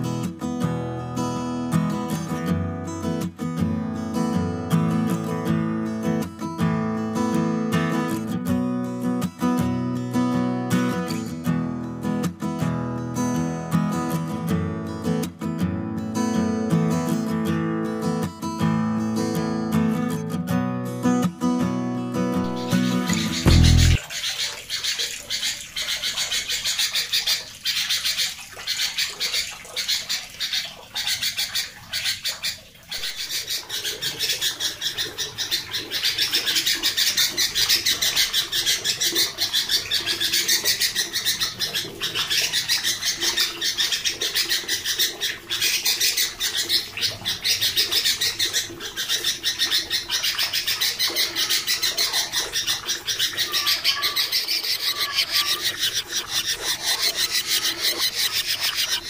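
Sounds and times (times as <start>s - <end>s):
bird harsh chattering calls: 22.4s - 59.0s.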